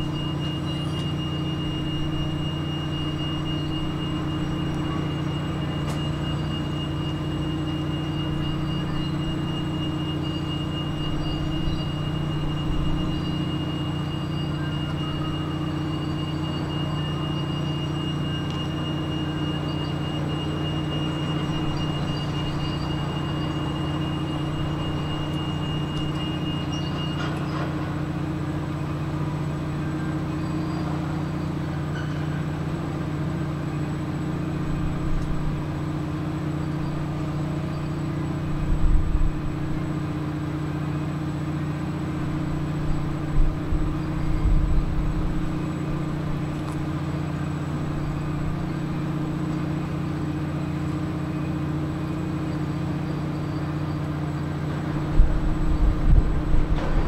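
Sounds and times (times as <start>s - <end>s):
idling diesel machinery drone: 0.0s - 57.0s
low rumbles: 54.1s - 57.0s.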